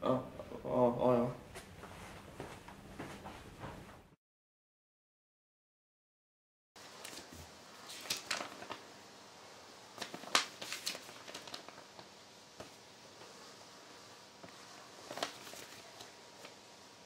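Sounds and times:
paper rustling and crinkling: 6.9s - 9.0s, 9.9s - 13.4s, 14.4s - 16.6s.

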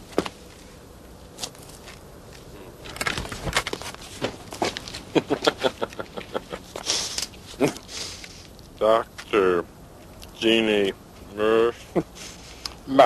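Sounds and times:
short hiss: 6.8s - 8.6s.

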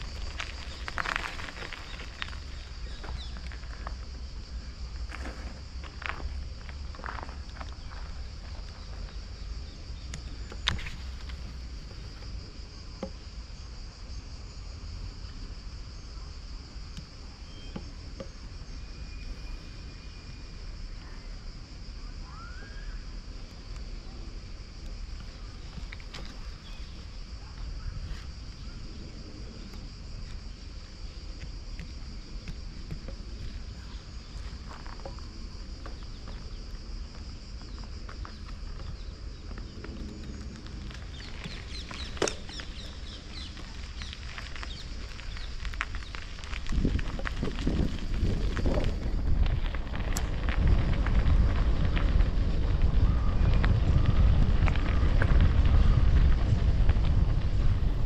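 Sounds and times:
insects singing: 0.0s - 58.0s
small birds chirping: 1.6s - 3.9s, 24.8s - 35.2s, 40.9s - 46.2s
steady low rumble: 23.2s - 58.0s
low rumble: 46.4s - 58.0s.

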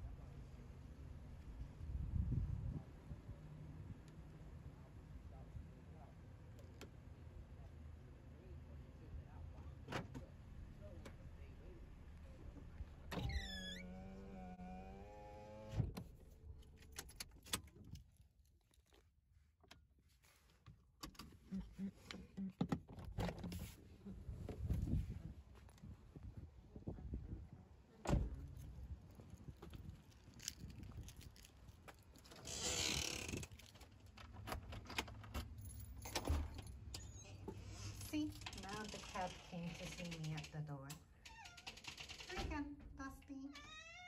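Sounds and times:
keys jangling: 29.1s - 32.5s.

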